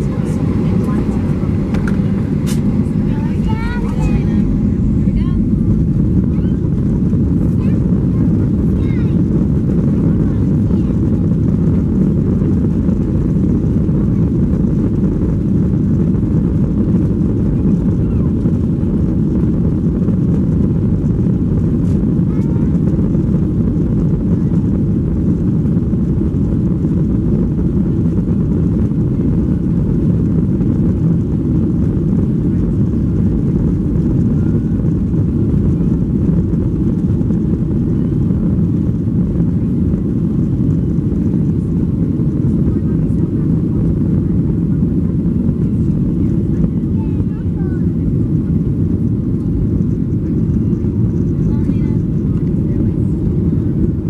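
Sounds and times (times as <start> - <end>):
aircraft cabin low rumble: 0.0 - 54.0.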